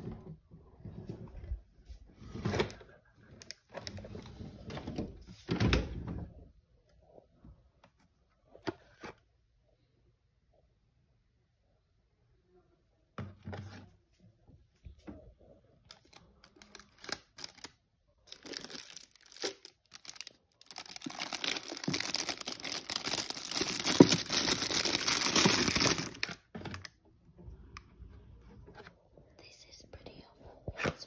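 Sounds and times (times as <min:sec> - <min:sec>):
plastic packaging rustling: 0:15.9 - 0:17.7, 0:18.3 - 0:26.9.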